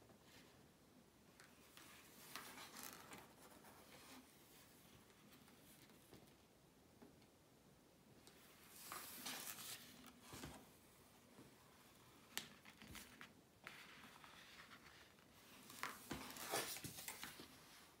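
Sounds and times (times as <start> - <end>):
paper card rustling and scraping: 8.8 - 10.6, 12.5 - 17.6.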